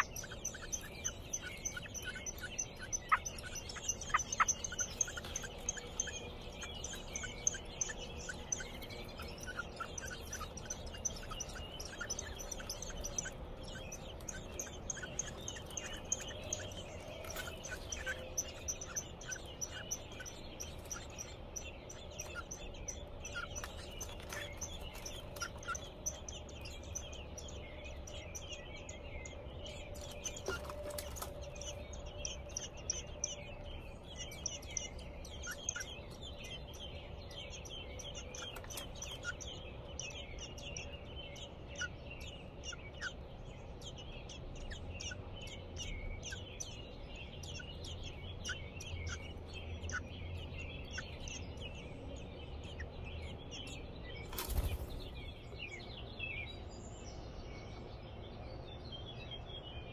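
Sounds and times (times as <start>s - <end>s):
nestlings chirping: 0.0s - 59.9s.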